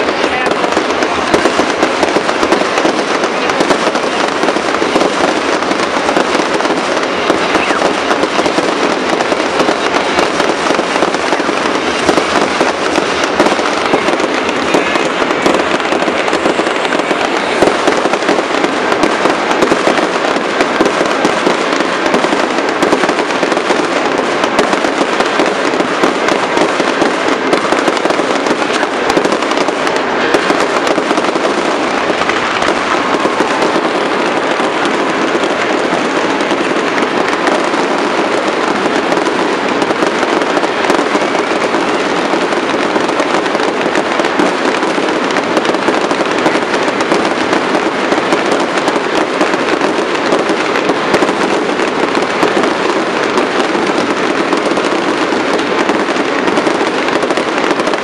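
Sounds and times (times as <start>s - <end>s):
fireworks shell bursts: 0.0s - 42.2s
fireworks crackling: 0.0s - 58.0s.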